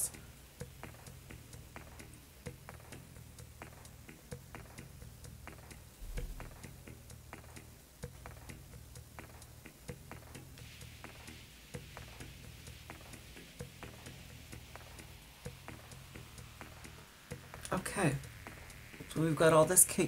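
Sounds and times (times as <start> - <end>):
low hum: 0.0 - 7.3, 10.5 - 20.0
soft low thump: 6.0 - 6.6.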